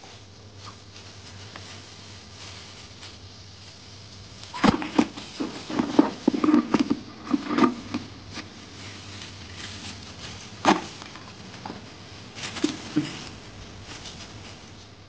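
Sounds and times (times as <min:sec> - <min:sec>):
crayfish clicking and scraping: 0:04.5 - 0:09.4.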